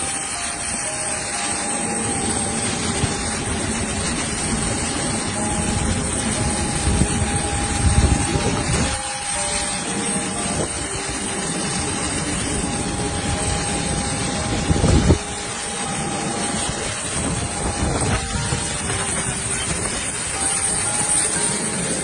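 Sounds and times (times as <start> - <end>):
airliner roar: 0.0 - 22.0
faint steady whine: 0.0 - 22.0.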